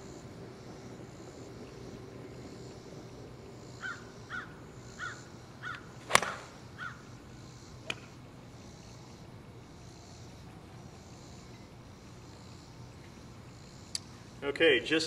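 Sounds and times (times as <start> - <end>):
bird calls: 3.8 - 7.1
golf club striking ball: 6.0 - 6.6.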